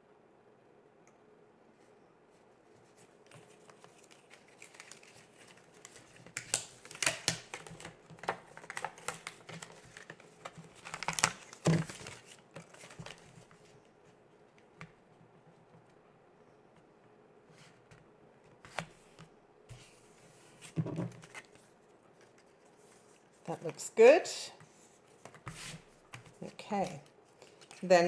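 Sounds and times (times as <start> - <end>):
cardstock rustling and clicking: 3.3 - 13.7.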